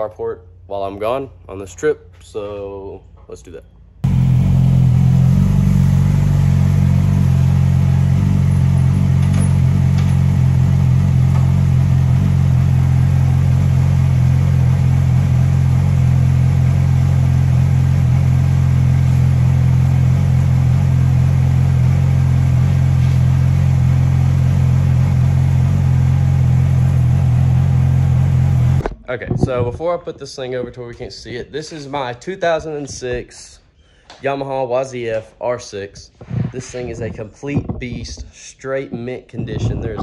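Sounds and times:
motorcycle engine idling: 4.1s - 28.8s.

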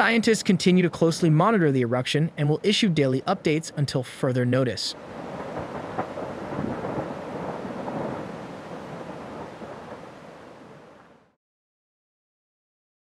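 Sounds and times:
lava spattering rushing rumble: 5.0s - 11.3s.

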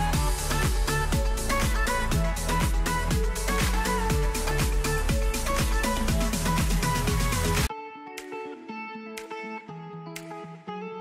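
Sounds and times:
upbeat electronic dance music: 0.0s - 8.4s.

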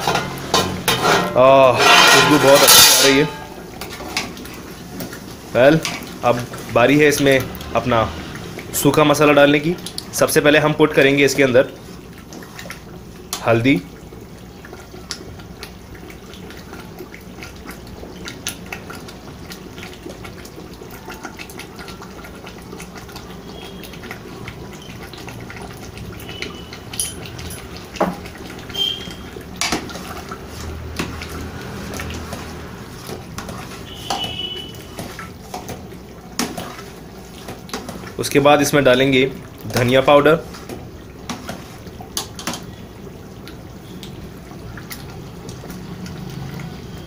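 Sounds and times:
metal ladle scraping a pot: 0.0s - 4.2s
gravy bubbling in a pot: 0.0s - 47.0s.

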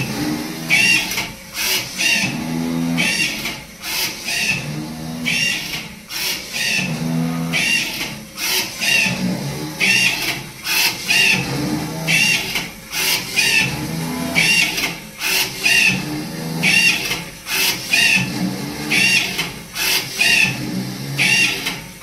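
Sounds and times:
steady low machine hum: 9.1s - 15.2s.

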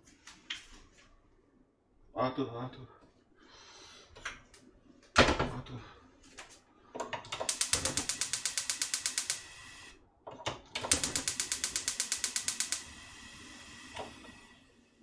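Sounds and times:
gas stove igniter clicking: 7.4s - 9.9s, 10.8s - 14.5s
gas burner hiss: 7.4s - 10.0s, 10.8s - 15.0s.

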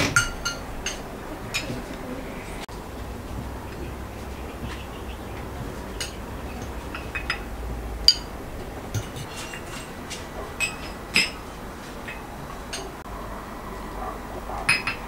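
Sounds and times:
forks clinking on plates: 0.0s - 1.8s, 9.0s - 11.4s.

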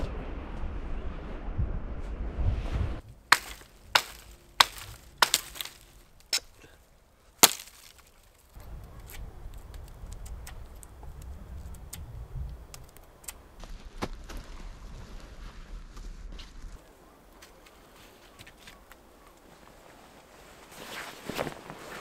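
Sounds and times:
steady low noise: 0.0s - 5.2s
sharp cracks: 3.2s - 6.6s, 7.4s - 12.1s.

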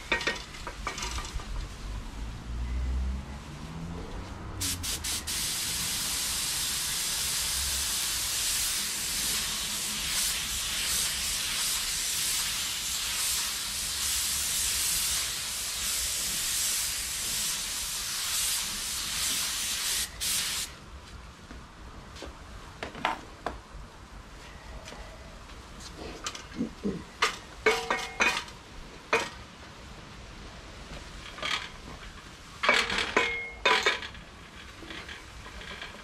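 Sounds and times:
paint spray gun hissing: 4.6s - 20.7s.

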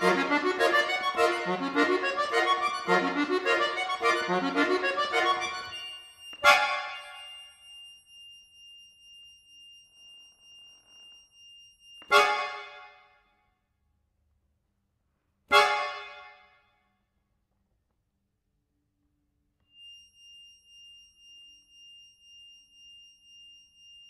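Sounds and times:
accordion high held note: 0.0s - 6.9s, 15.5s - 16.4s
accordion chords: 0.0s - 7.1s, 12.1s - 12.9s, 15.5s - 16.5s.

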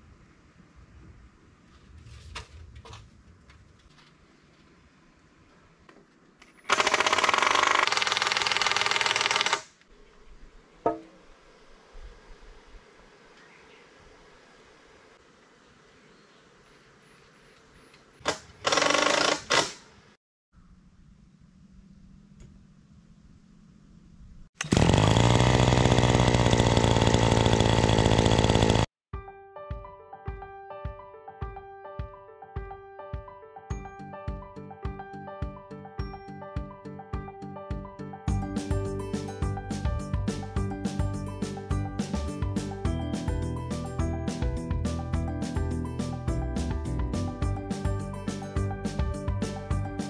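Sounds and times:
power tool hammering rattle: 6.6s - 9.8s, 18.2s - 19.9s, 24.6s - 28.9s
small engine running: 6.7s - 9.6s, 18.6s - 19.7s, 24.6s - 28.9s.

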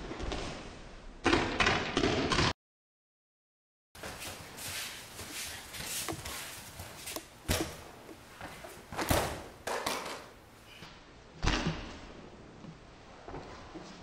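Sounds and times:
feet shuffling: 4.0s - 7.4s.

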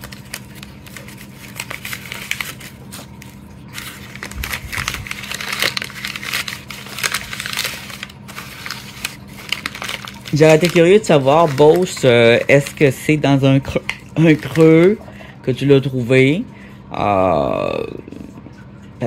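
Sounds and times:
gift packaging crinkling: 0.0s - 15.2s.

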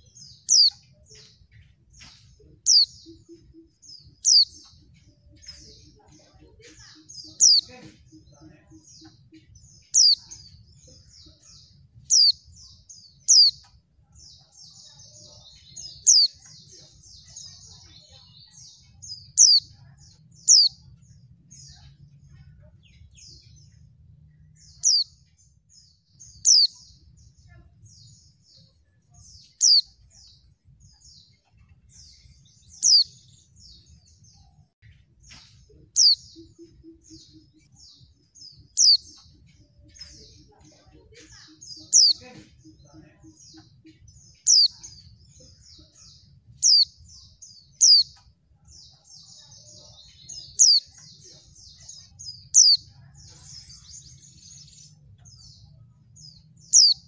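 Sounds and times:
bird twittering: 0.0s - 10.6s, 11.2s - 13.8s, 15.8s - 16.6s, 19.0s - 21.7s, 22.9s - 25.3s, 26.3s - 26.9s, 29.4s - 30.3s, 30.9s - 33.8s, 35.0s - 40.5s, 41.1s - 47.0s, 47.7s - 48.3s, 50.2s - 51.1s, 52.4s - 52.9s, 56.4s - 57.0s.

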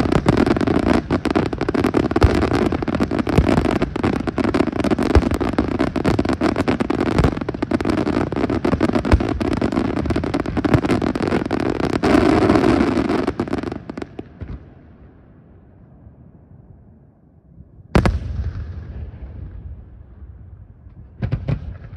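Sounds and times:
fireworks crackling and banging: 0.0s - 14.7s, 20.8s - 21.9s.

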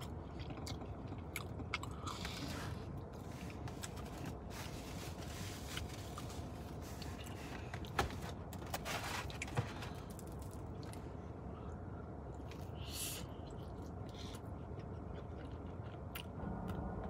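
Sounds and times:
low car cabin hum: 0.0s - 17.0s
takeout packaging rustling: 3.2s - 10.6s.

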